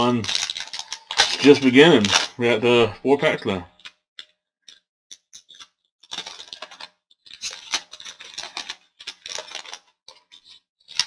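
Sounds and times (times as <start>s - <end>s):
foil wrapper crackling: 0.0s - 2.8s, 5.4s - 11.0s.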